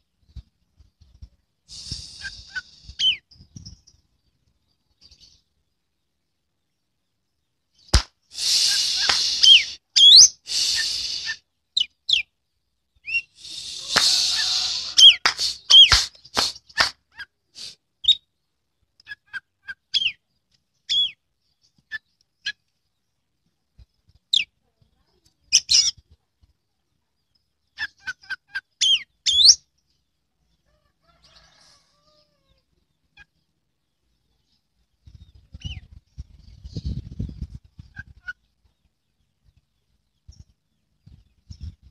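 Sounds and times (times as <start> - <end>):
bird singing whistles and chirps: 8.5 - 12.3, 13.0 - 16.8, 28.8 - 29.6.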